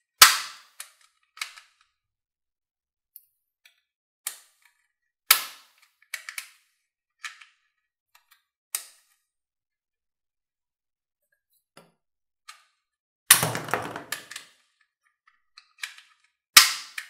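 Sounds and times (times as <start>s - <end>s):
plastic toy gun clicks: 0.2s - 1.9s, 15.6s - 17.0s.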